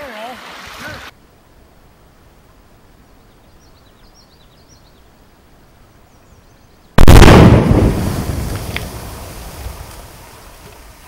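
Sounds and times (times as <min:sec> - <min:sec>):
outdoor hiss: 0:00.0 - 0:11.0
loud explosion blast: 0:07.0 - 0:09.8.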